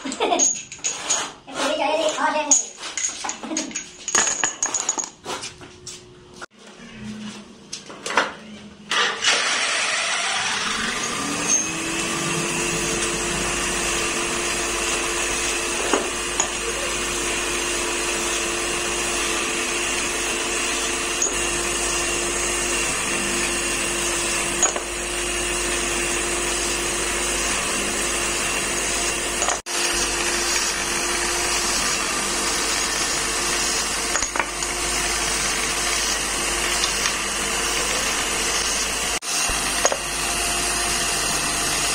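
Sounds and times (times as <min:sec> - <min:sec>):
buffing wheel motor running: 0:08.9 - 0:41.9.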